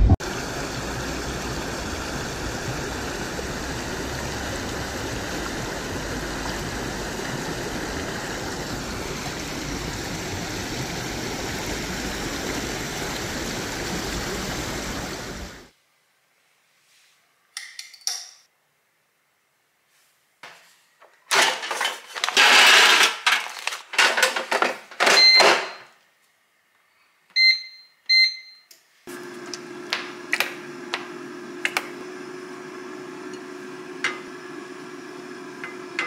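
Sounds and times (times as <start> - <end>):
stream rushing over rocks: 0.2 - 15.7.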